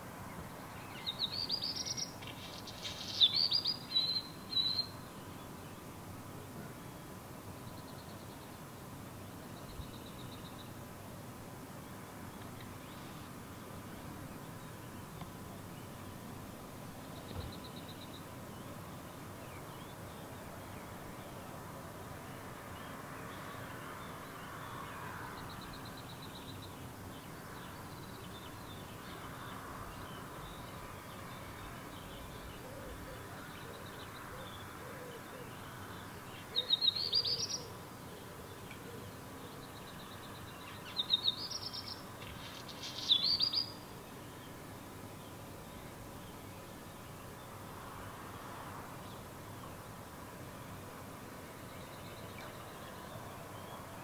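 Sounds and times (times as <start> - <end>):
background hiss: 0.0 - 54.0
songbird singing high phrases: 0.6 - 5.7, 35.5 - 44.6.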